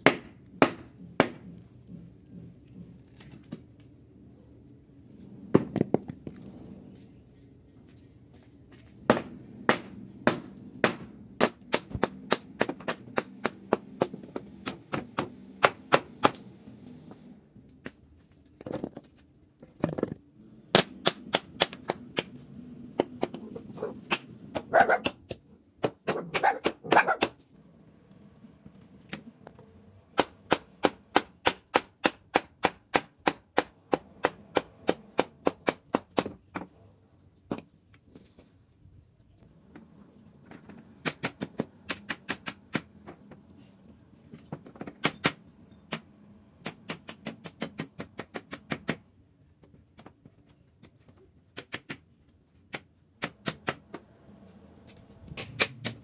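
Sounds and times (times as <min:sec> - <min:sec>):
hammer striking wood: 0:00.0 - 0:01.6, 0:09.1 - 0:16.4, 0:30.2 - 0:36.7.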